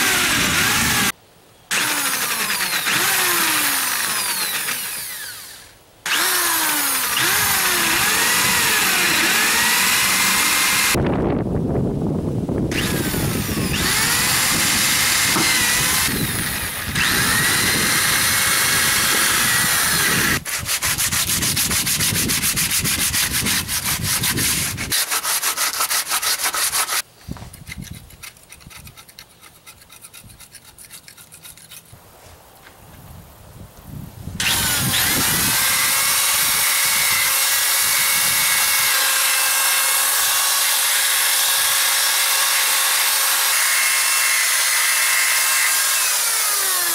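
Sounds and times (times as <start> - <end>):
electric drill running under load: 0.0 - 1.1, 1.7 - 11.0, 12.7 - 20.4, 34.4 - 46.9
hand scraper scraping: 0.0 - 11.0, 12.7 - 32.4.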